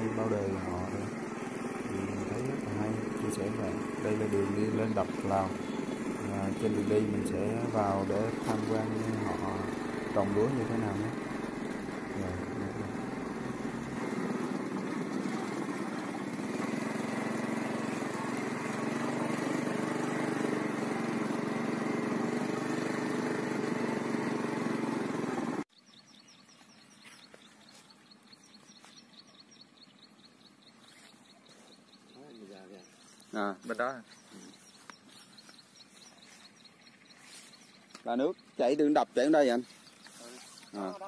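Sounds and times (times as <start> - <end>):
motorcycle engine running: 0.0 - 25.7, 26.5 - 38.1
faint bird chirps: 25.7 - 41.0.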